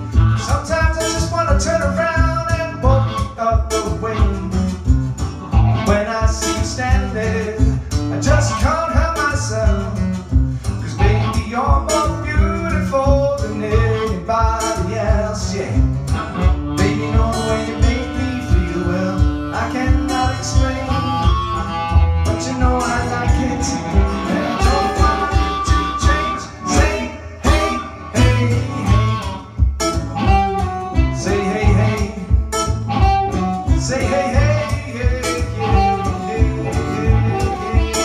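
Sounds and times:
acoustic guitar strumming: 0.0 - 38.0
person singing: 10.9 - 15.7, 16.3 - 29.6, 30.2 - 32.4, 33.0 - 38.0.

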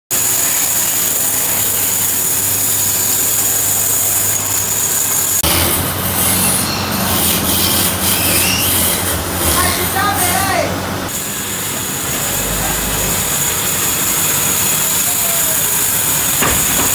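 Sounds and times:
band saw cutting wood: 0.2 - 16.9
wood lathe turning: 0.2 - 16.9
high squeals: 5.4 - 16.9.

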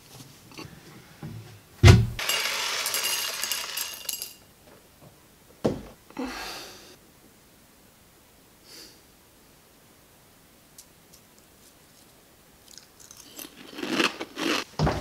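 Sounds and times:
cereal pouring into a bowl: 2.2 - 4.4.

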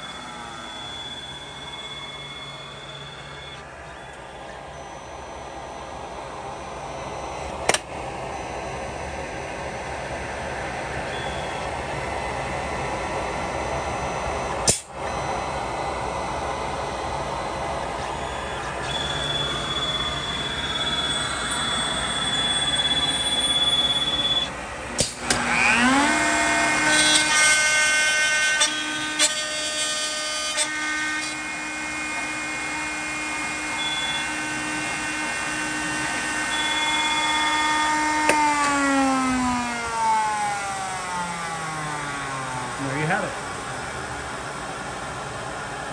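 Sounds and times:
router spindle whine: 0.0 - 45.9.

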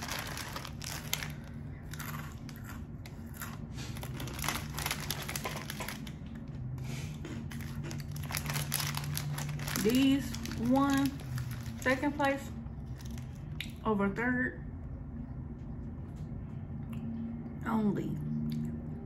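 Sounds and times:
snack packet crinkling: 0.0 - 6.5, 7.5 - 13.6
low hum: 0.0 - 19.0.

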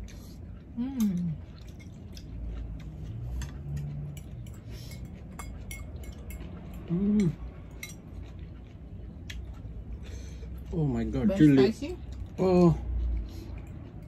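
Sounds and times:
cutlery clicking on ceramic bowls: 3.4 - 8.4
person humming: 6.9 - 7.4.

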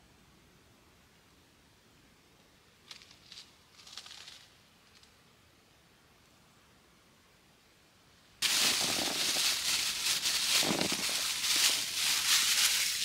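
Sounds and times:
dense crackling rustling noise: 2.4 - 5.2, 8.4 - 13.0.

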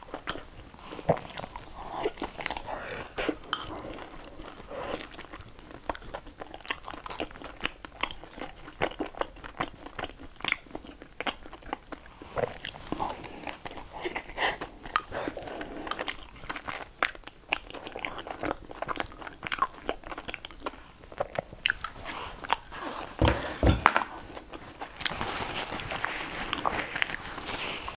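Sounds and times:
person chewing food: 0.0 - 27.9
tissue rustling: 22.0 - 27.9.

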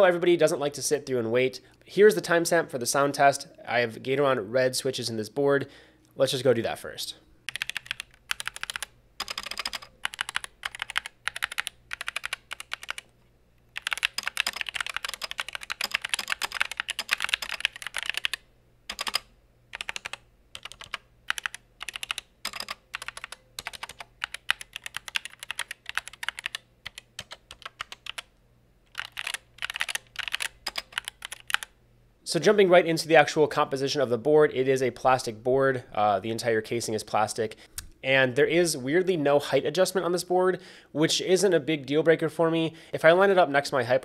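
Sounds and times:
mechanical keyboard typing: 7.5 - 13.1, 13.7 - 28.3, 28.9 - 31.7.

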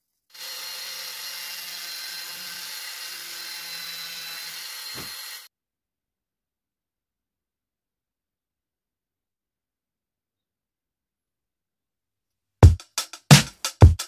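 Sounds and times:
rotary tool grinding wood: 0.0 - 5.5.

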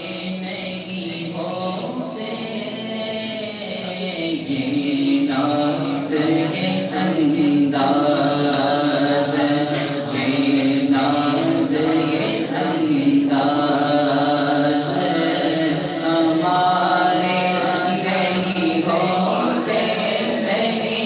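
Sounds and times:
man singing through loudspeaker: 0.0 - 21.0.

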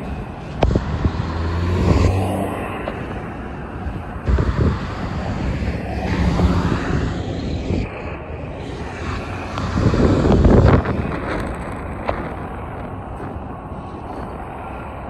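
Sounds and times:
truck diesel engine humming: 0.0 - 7.8
cars driving past: 0.0 - 15.0
wind on microphone: 0.0 - 15.0.

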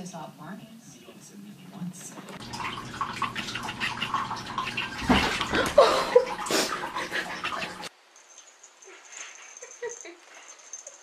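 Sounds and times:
water splashing and sloshing: 2.1 - 8.0.

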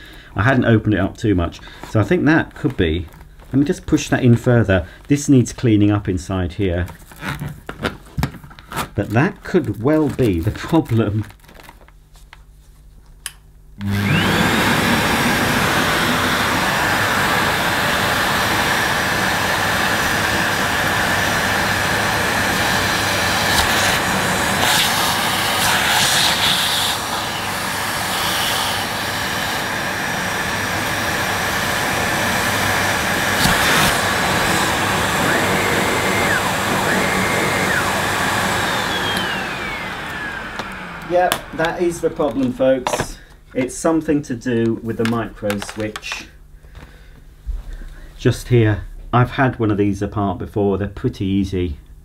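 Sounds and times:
vacuum cleaner motor whine: 13.8 - 43.2.

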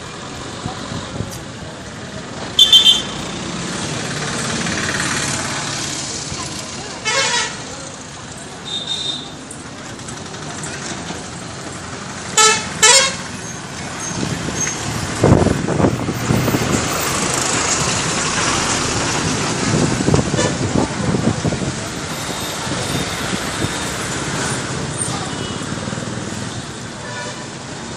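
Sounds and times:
large truck passing close: 0.0 - 7.0, 9.6 - 27.0
passing vehicles: 0.0 - 27.9
vehicle horn toots: 2.6 - 3.2.

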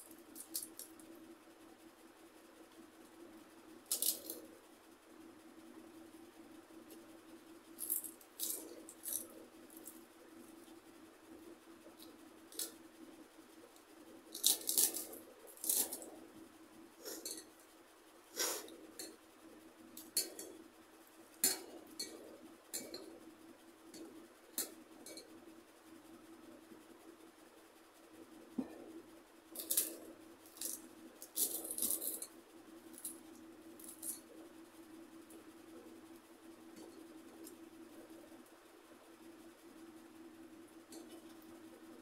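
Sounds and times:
steady low hum: 0.0 - 42.0
crisp crunching while eating: 14.3 - 16.1, 29.6 - 32.2.

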